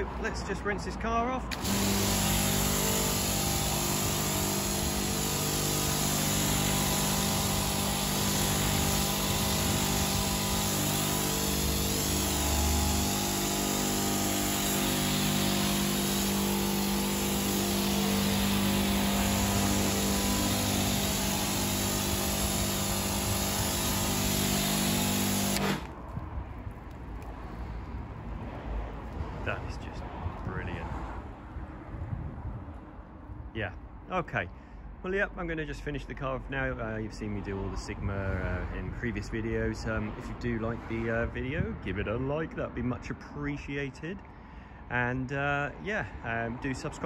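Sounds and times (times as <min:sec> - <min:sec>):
water jet hissing on car: 0:01.5 - 0:26.0
pressure washer motor hum: 0:01.5 - 0:26.1.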